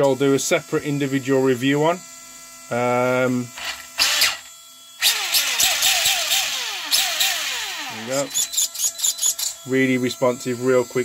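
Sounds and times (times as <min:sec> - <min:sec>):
electric motor whine: 0:00.0 - 0:11.0
drivetrain rushing noise: 0:05.1 - 0:08.4.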